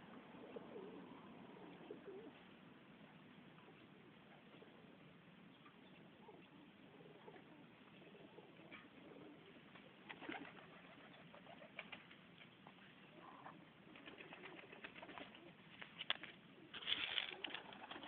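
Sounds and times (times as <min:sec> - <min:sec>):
pigeons cooing: 0:00.2 - 0:02.4, 0:06.1 - 0:12.0, 0:13.1 - 0:15.6.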